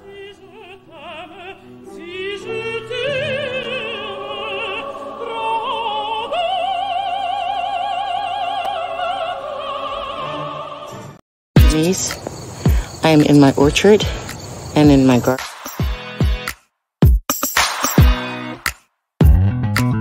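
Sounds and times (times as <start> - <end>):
opera singing with vibrato: 0.0 - 12.1
musical accompaniment: 17.3 - 20.0.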